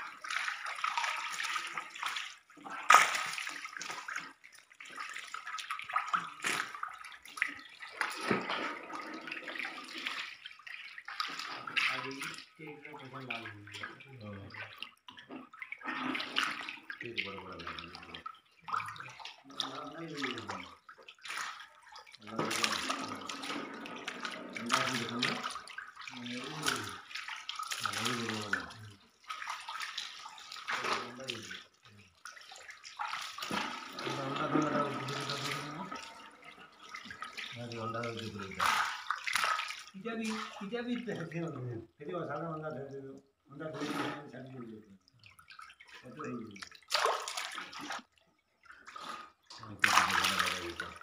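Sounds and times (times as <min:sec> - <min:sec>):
fish splashing in shallow water: 0:00.0 - 0:12.6, 0:13.2 - 0:41.0, 0:44.9 - 0:51.0
person talking: 0:11.8 - 0:14.6, 0:19.5 - 0:20.7, 0:22.2 - 0:23.4, 0:24.6 - 0:25.5, 0:26.1 - 0:27.0, 0:27.8 - 0:29.0, 0:30.7 - 0:32.0, 0:34.0 - 0:36.2, 0:37.5 - 0:38.8, 0:40.0 - 0:44.9, 0:46.0 - 0:46.6, 0:49.6 - 0:51.0.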